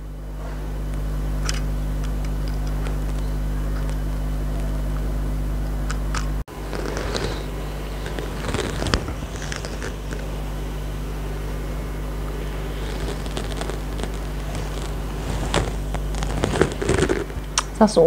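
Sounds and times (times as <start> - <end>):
electric device hum: 0.0 - 18.0
handling rustles and clicks: 1.4 - 4.7.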